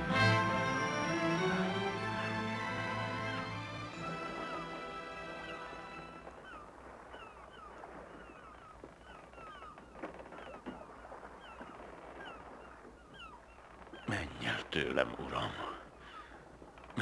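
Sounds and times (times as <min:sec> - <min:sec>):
music: 0:00.0 - 0:06.3
faint bird calls: 0:03.9 - 0:17.0.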